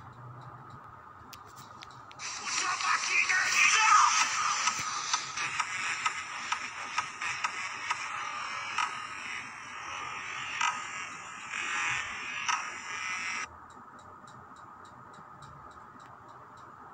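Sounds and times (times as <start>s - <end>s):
dense soundtrack music: 0.0s - 16.8s
faint high ticking: 13.4s - 16.9s.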